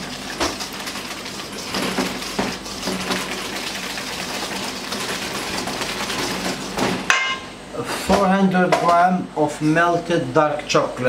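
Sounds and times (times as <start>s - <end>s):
whisk scraping metal bowl: 0.0s - 7.1s.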